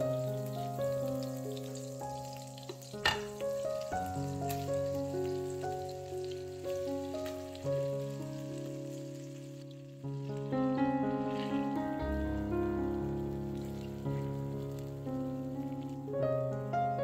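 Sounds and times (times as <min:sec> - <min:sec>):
background music: 0:00.0 - 0:17.0
oil sizzling in frying pan: 0:00.0 - 0:17.0.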